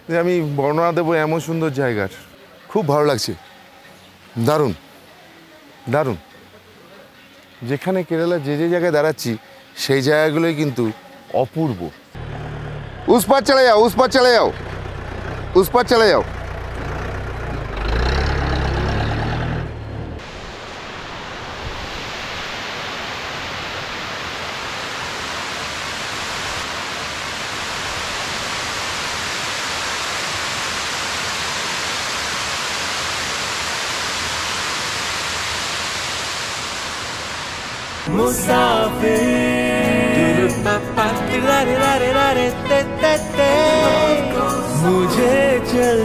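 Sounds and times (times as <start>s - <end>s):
vehicle engine rumble: 12.2s - 20.2s
steady rushing hiss: 20.2s - 46.0s.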